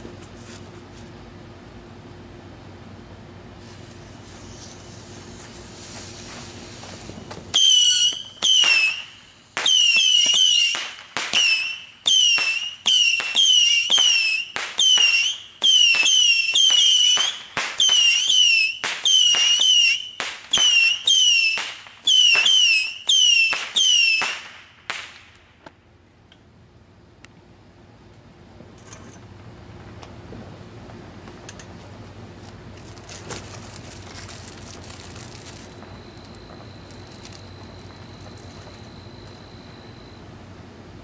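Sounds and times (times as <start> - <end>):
whistling rockets firing: 3.6 - 25.4, 34.7 - 40.2.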